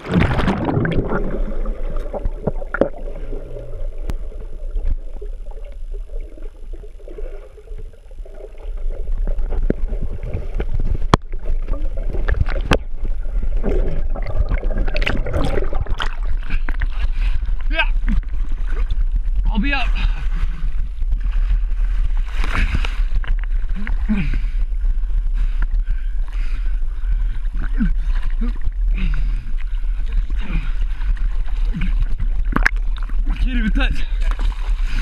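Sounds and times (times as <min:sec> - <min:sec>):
sharp knocks underwater: 0:00.0 - 0:03.2, 0:09.2 - 0:17.1, 0:31.1 - 0:33.4
underwater rumble and wash: 0:00.0 - 0:35.0
water sloshing and splashing: 0:00.0 - 0:35.0.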